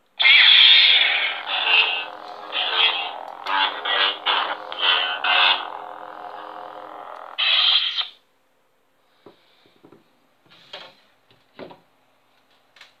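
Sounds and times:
lightsaber hum: 0:00.2 - 0:08.1.

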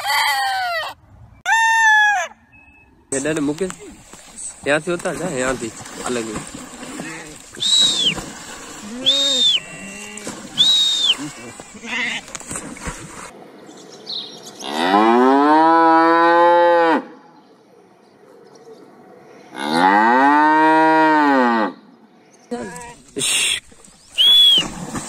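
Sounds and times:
cow mooing: 0:08.8 - 0:10.4, 0:14.6 - 0:17.2, 0:19.5 - 0:21.8.

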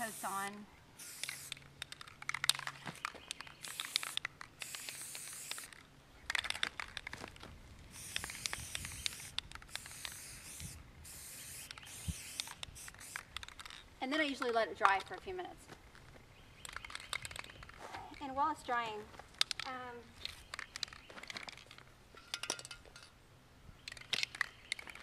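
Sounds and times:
spray can hissing: 0:00.0 - 0:01.6, 0:03.6 - 0:05.8, 0:07.9 - 0:13.6.

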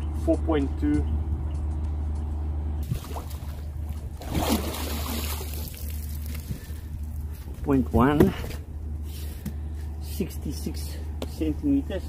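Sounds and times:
steady low rumble: 0:00.0 - 0:12.0
water splashing and trickling: 0:02.8 - 0:07.2.

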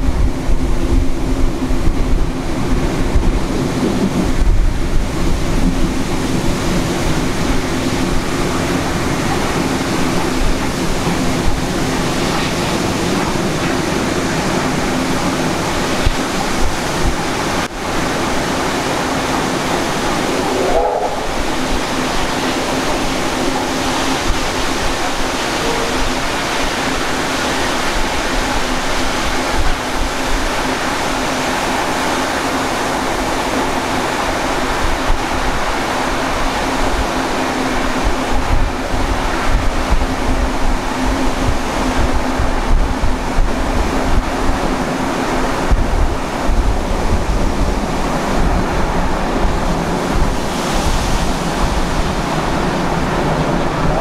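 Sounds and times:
train wind and wheel noise: 0:00.0 - 0:54.0
wavering squeal: 0:19.7 - 0:21.8, 0:25.4 - 0:26.4.

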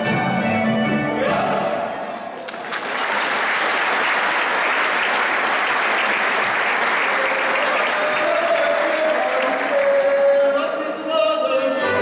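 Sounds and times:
audience applause: 0:02.4 - 0:10.6.

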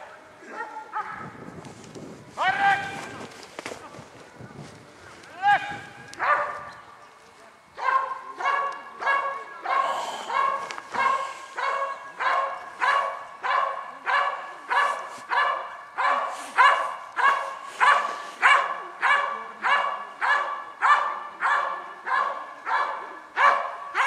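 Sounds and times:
dog barking rhythmically: 0:07.8 - 0:24.0.

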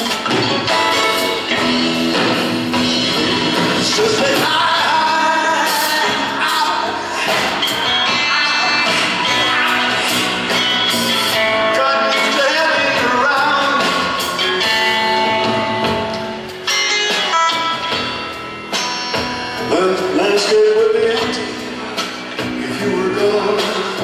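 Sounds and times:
drum kit: 0:00.0 - 0:24.0
electric guitar: 0:00.0 - 0:24.0
upright bass: 0:00.0 - 0:24.0
man singing: 0:02.8 - 0:15.3, 0:19.6 - 0:24.0.

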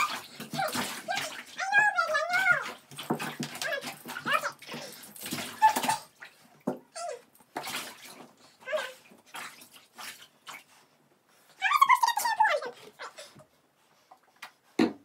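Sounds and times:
water splashing in tub: 0:00.0 - 0:10.8.

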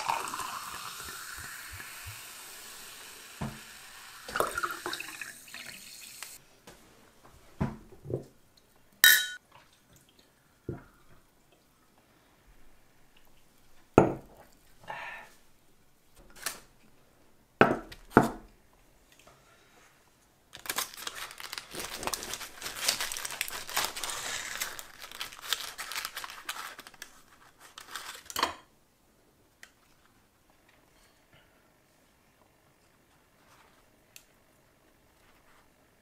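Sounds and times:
paper case crinkling: 0:20.5 - 0:28.3.

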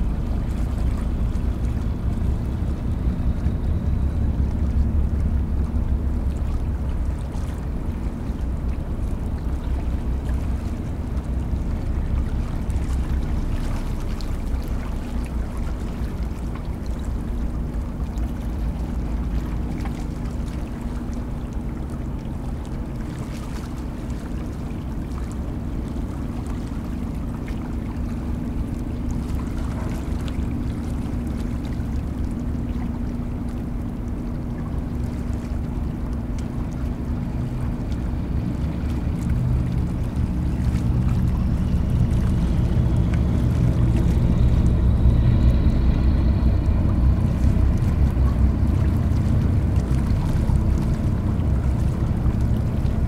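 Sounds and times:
diesel engines rumbling: 0:00.0 - 0:13.0, 0:37.0 - 0:53.0.

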